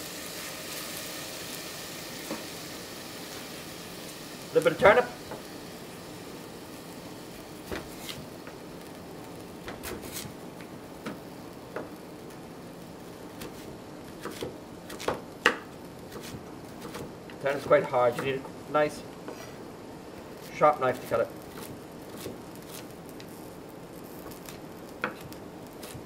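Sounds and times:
knife chopping on plastic board: 14.2s - 17.1s.

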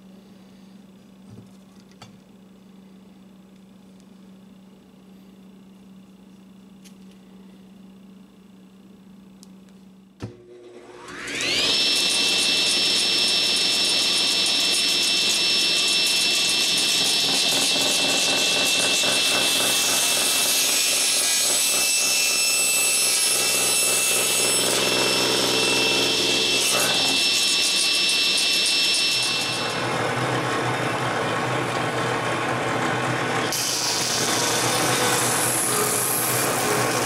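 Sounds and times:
table saw whining: 10.2s - 37.0s
saw blade cutting: 10.5s - 31.2s, 33.5s - 37.0s.

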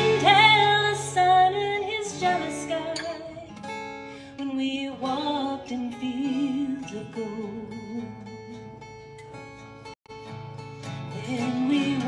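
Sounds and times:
woman singing with vibrato: 0.0s - 3.6s, 4.4s - 8.8s, 11.1s - 12.0s
acoustic guitar: 0.0s - 12.0s.

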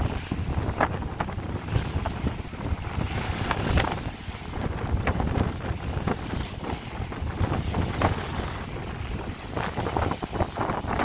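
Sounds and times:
wind buffeting microphone: 0.0s - 11.0s
water splashing against rocks: 1.6s - 6.8s.

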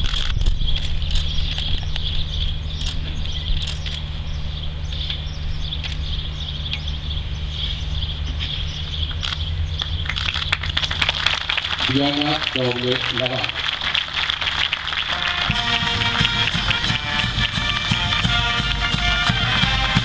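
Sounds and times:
scattered clicks: 0.0s - 2.1s, 2.8s - 4.0s, 9.1s - 13.4s
low steady hum: 0.3s - 20.0s.

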